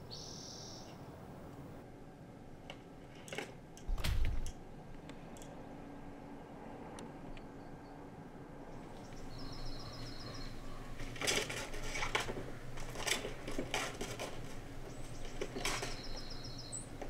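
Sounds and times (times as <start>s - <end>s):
bird trill: 0.0s - 1.0s, 8.8s - 11.2s, 14.8s - 17.0s
squirrel scrabbling on feeder shield: 9.0s - 17.0s.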